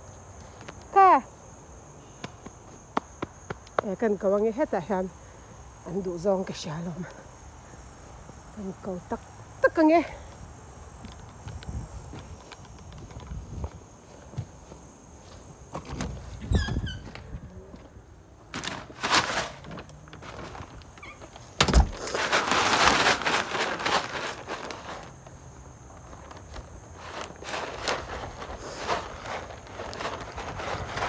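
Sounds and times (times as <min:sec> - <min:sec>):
footsteps outdoors: 0:00.0 - 0:31.0
loud rustling: 0:18.5 - 0:25.4, 0:26.0 - 0:31.0.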